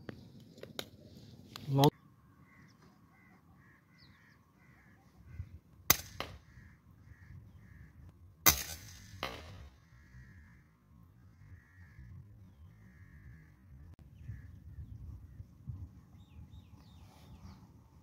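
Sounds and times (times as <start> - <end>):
bird calling: 1.7 - 8.1
air rifle cracks: 5.9 - 6.4.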